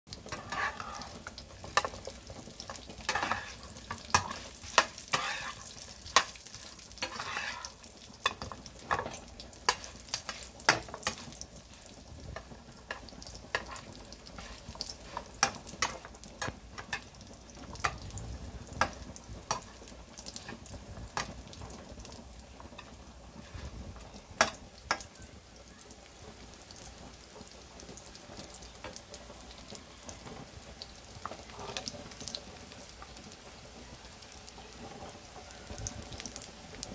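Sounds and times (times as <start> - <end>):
cutlets sizzling in hot oil: 0.1 - 36.9
metal spatula clicking and scraping: 0.2 - 11.4, 12.3 - 17.1, 17.7 - 18.1, 18.8 - 20.6.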